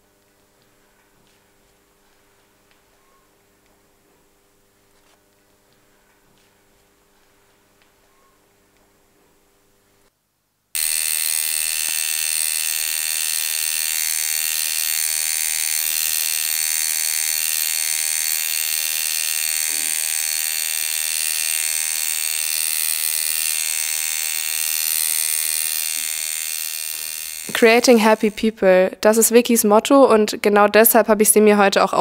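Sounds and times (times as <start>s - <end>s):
tattoo machine buzzing: 10.8s - 28.6s.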